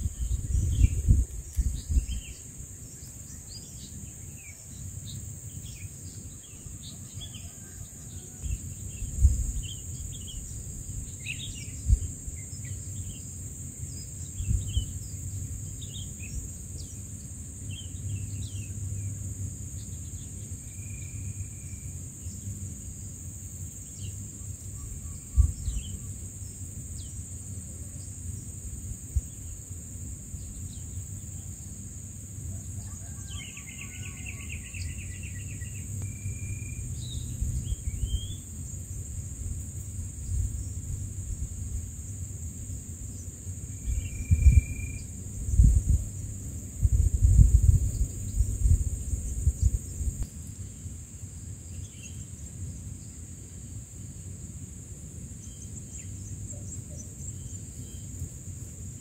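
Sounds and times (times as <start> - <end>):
high insect drone: 0.0 - 59.0.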